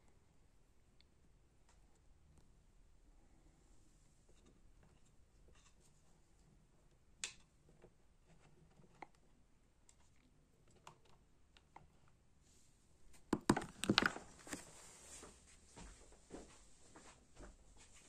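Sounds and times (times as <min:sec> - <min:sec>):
handling clicks: 0:13.2 - 0:14.6.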